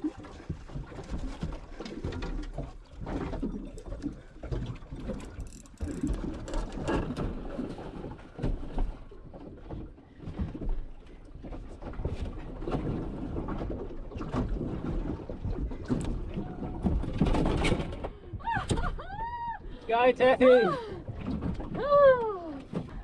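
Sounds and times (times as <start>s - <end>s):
boat and water noise: 0.0s - 23.0s
fishing gear knocks and clicks: 4.6s - 7.4s.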